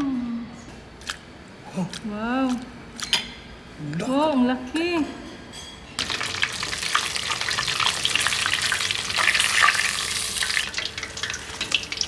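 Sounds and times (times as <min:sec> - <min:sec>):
meat deep-frying in sizzling oil: 0:06.0 - 0:12.0.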